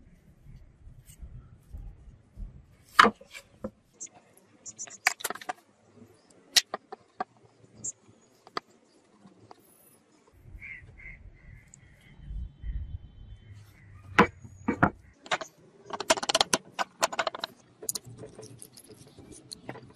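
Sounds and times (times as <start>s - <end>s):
wooden knocks and clicks: 14.1s - 19.9s.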